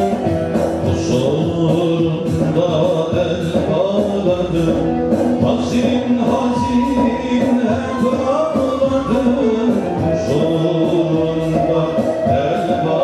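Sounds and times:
steady percussion beat: 0.0 - 13.0
men singing a hymn: 5.5 - 13.0.

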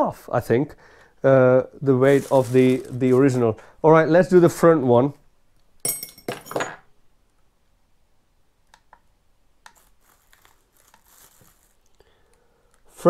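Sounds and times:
packaging rustling: 1.8 - 3.4, 9.8 - 13.0.

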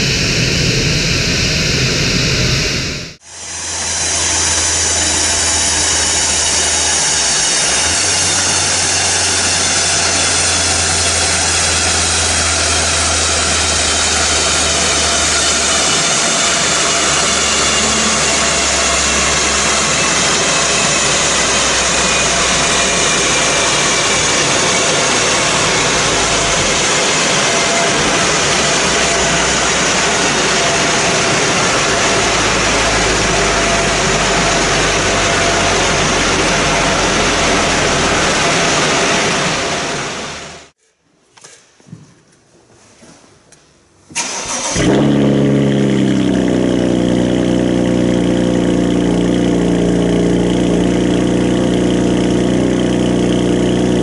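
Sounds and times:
high whine falling in pitch: 0.0 - 40.7, 44.8 - 54.0
loud rush of fan and rollers: 0.0 - 40.7.

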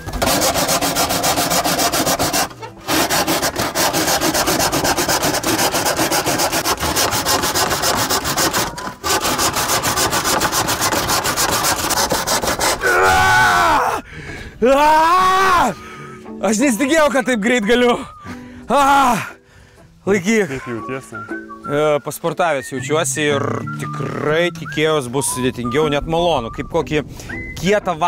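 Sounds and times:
hand saw rasping through roofing sheet: 0.0 - 13.0
man groaning: 12.8 - 14.0, 23.3 - 24.5.

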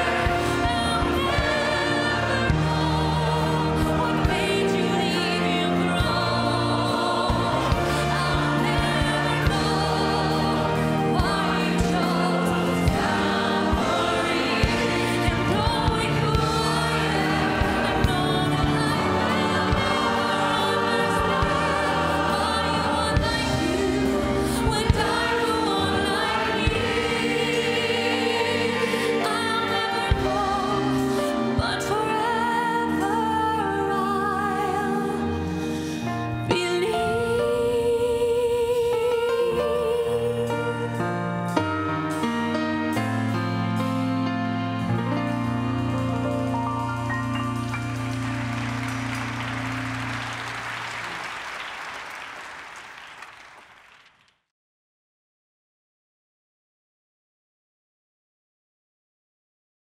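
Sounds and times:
choir singing: 0.0 - 35.6
band with guitars bass and piano: 0.0 - 52.4
orchestra: 0.0 - 54.1
woman singing lead: 28.2 - 41.2.

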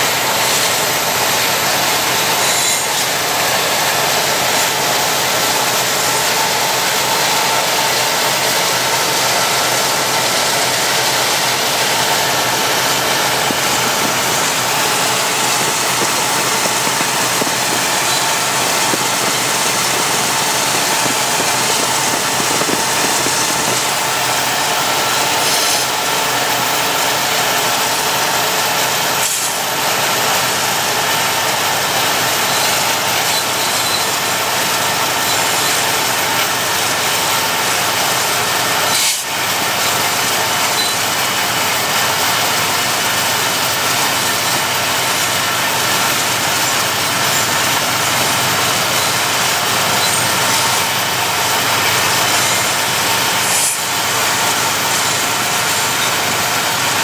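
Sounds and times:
diesel locomotives running: 0.0 - 57.0
vehicle road and wind noise: 11.0 - 26.0.

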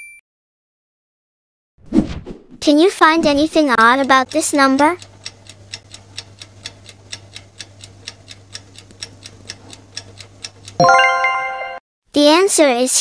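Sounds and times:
clock ticking: 3.6 - 11.5.

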